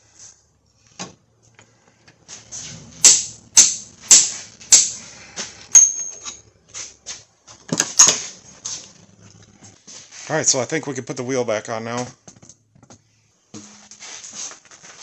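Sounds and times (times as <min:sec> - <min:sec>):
hand tools striking metal: 0:03.0 - 0:06.4.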